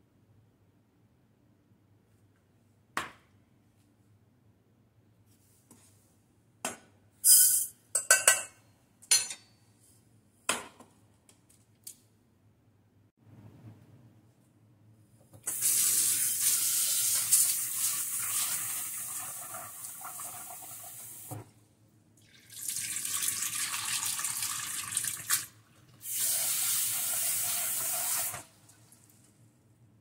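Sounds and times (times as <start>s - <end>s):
tap water running into saucepan: 22.2s - 28.5s.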